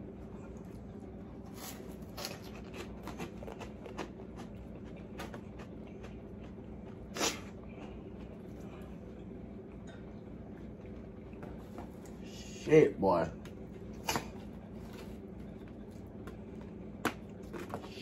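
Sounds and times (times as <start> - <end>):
steady low hum: 0.0 - 18.0
person chewing food: 0.3 - 12.2.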